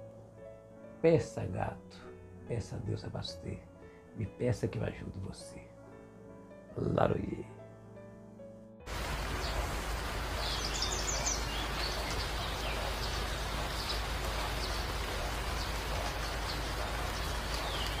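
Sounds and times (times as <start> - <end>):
rain rushing: 8.9 - 18.0
faint bird chirps: 10.4 - 14.8.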